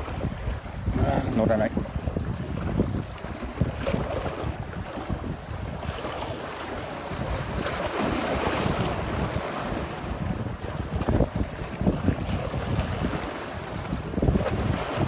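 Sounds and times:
waves washing among concrete blocks: 0.0 - 15.0
wind buffeting microphone: 0.0 - 15.0.

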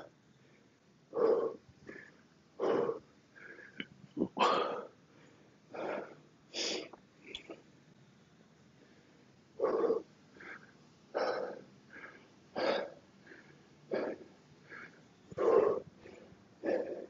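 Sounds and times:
man breathing hard: 0.0 - 7.0, 8.8 - 17.0.

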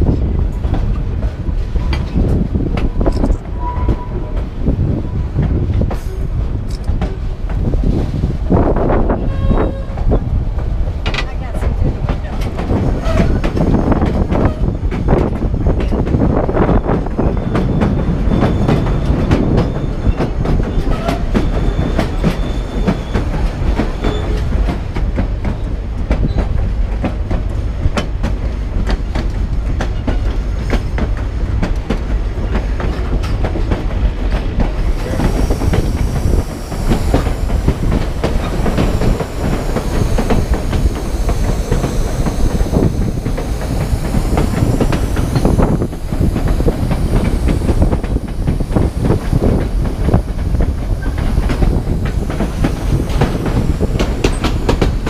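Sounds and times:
train wheels rumbling: 0.0 - 55.0
high squeal of wheels on curve: 3.6 - 4.2, 9.2 - 10.0, 13.0 - 13.4, 17.3 - 24.5, 50.9 - 54.6
wheels clacking over rail joints: 5.4 - 55.0.

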